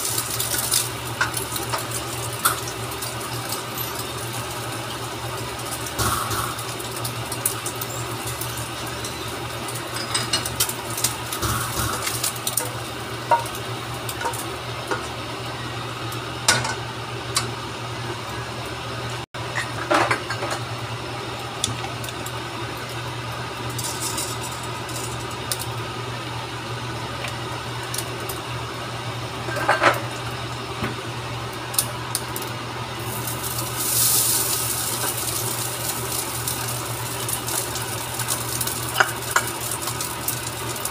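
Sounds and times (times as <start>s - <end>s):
rice sizzling in frying pan: 0.0s - 19.2s, 20.5s - 40.9s
steady low hum: 5.4s - 19.2s.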